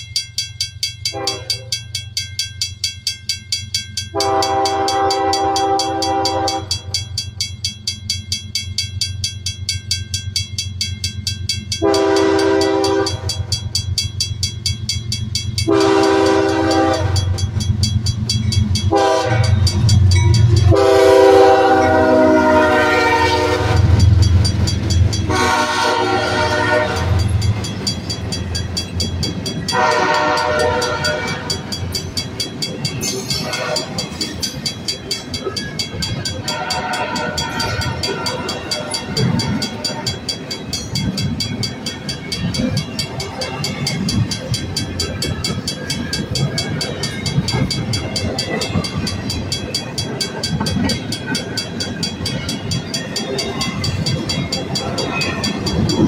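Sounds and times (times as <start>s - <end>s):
train horn blasts: 1.1s - 1.7s, 4.1s - 7.0s, 11.8s - 13.5s, 15.6s - 17.4s, 18.8s - 24.2s, 25.2s - 27.6s, 29.6s - 31.7s, 33.4s - 34.1s, 36.3s - 40.2s
locomotive engine rumble: 4.1s - 56.0s.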